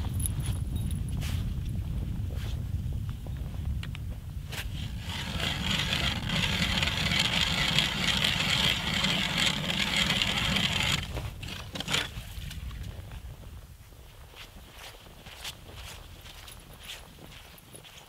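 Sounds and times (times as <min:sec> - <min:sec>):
ice auger grinding through ice: 0:04.8 - 0:12.5.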